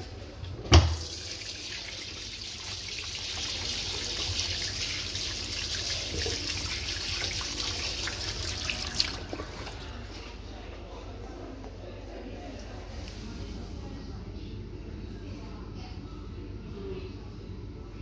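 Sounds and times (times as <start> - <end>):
tap water splashing into sink: 0.7 - 1.9, 5.8 - 9.8.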